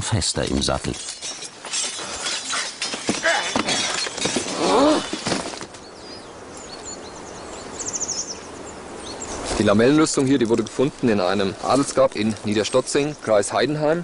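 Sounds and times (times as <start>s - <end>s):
birds chirping: 0.0s - 14.0s
clattering and crashing: 0.5s - 5.8s.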